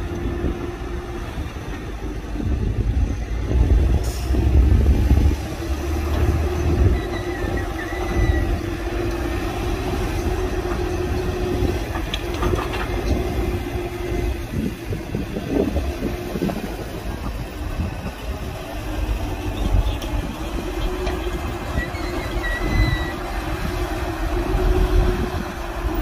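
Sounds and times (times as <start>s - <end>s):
diesel engine rumble: 0.0s - 26.0s
high squeal: 6.5s - 8.7s, 21.2s - 23.3s.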